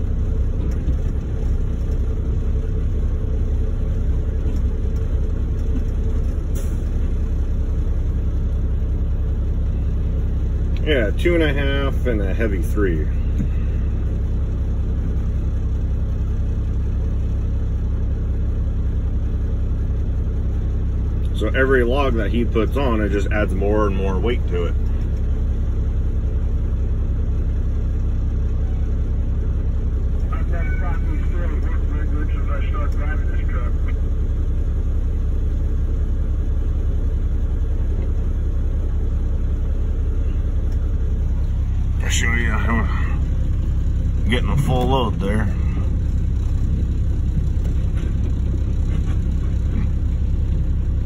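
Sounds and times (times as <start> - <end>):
diesel engine idling: 0.0 - 51.0.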